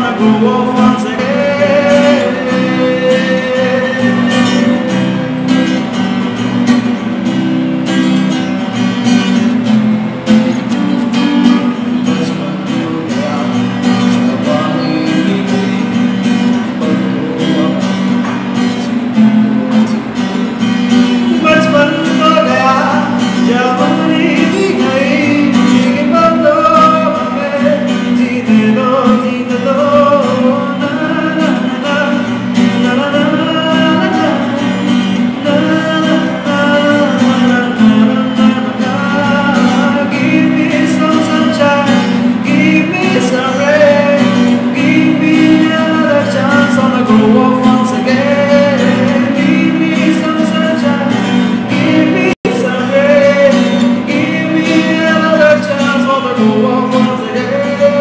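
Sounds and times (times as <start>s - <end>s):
man singing: 0.0s - 6.0s, 10.6s - 58.0s
acoustic guitar strumming: 0.0s - 58.0s.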